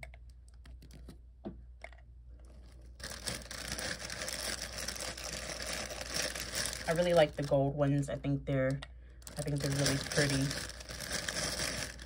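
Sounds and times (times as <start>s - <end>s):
small bag rustling: 2.4s - 7.6s, 9.3s - 12.0s.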